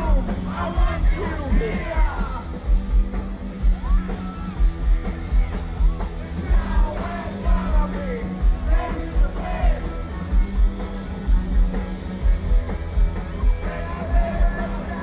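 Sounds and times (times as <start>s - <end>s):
man singing and yelling: 0.0s - 2.6s, 6.4s - 10.1s, 13.5s - 15.0s
punk rock band playing loudly: 0.0s - 15.0s.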